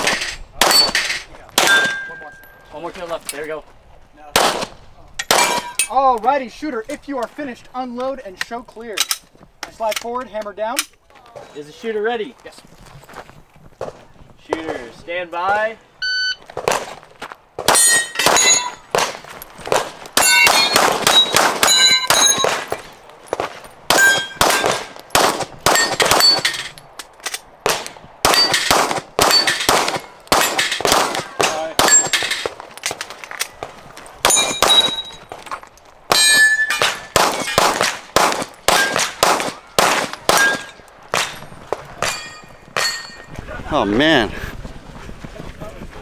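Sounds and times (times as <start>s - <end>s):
pistol shots: 4.4s - 4.7s, 5.3s - 5.8s, 17.6s - 26.7s, 27.6s - 32.6s, 36.1s - 41.4s
steel plate ringing: 17.8s - 18.8s, 20.2s - 22.5s, 34.3s - 35.3s, 36.1s - 37.6s, 42.0s - 43.4s.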